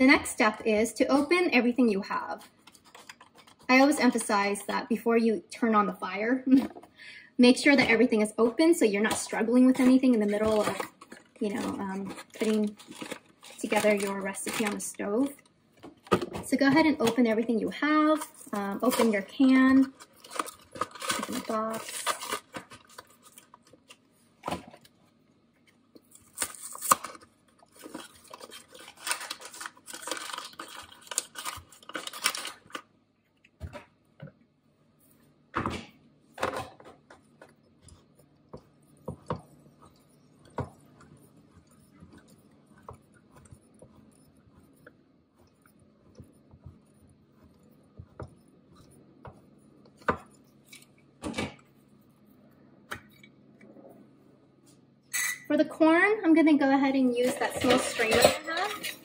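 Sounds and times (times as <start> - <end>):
cardboard box tearing: 27.8 - 32.7.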